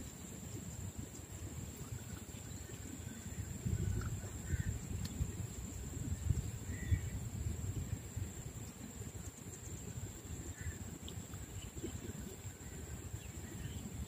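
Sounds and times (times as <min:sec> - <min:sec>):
wind on microphone: 0:00.0 - 0:14.0.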